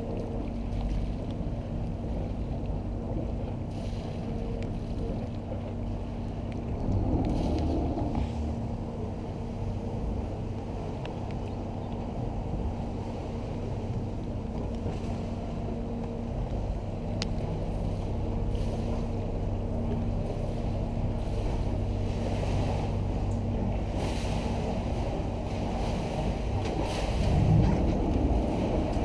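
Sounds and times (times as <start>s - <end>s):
boat engine droning: 0.0s - 29.0s
water wash: 0.0s - 29.0s
wind noise on microphone: 6.6s - 16.4s, 20.4s - 29.0s.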